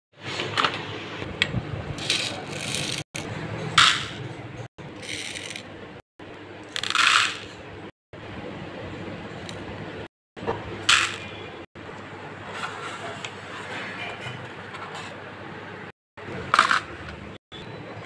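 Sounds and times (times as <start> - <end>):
beads rattling in plastic tray: 5.0 - 5.6.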